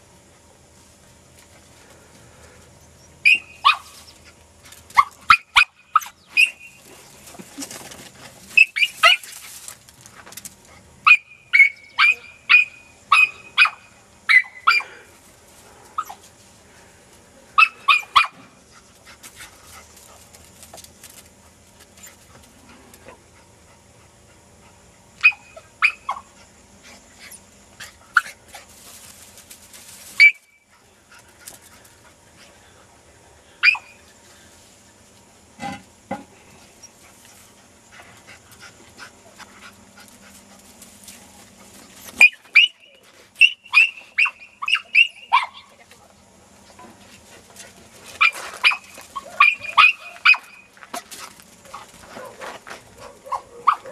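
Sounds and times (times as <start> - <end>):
dog barking in high yips: 3.2 - 4.0, 5.0 - 6.6, 8.6 - 9.3, 11.0 - 14.8, 25.2 - 26.3, 33.6 - 34.0, 42.2 - 45.7, 48.2 - 50.6, 52.2 - 53.9.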